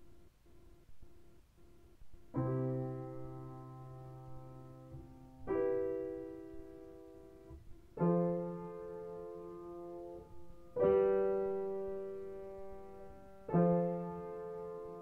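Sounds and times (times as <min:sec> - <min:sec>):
soft piano chords: 0:02.1 - 0:15.0.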